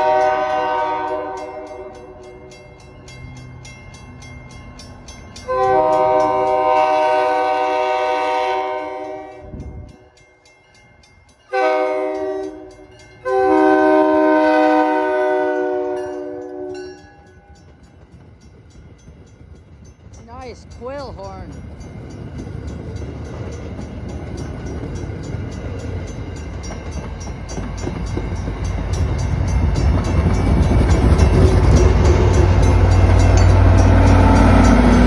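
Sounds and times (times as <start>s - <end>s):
train horn blasts: 0.0s - 2.3s, 5.5s - 9.8s, 11.5s - 17.0s, 31.5s - 35.0s
train rumble: 0.0s - 35.0s.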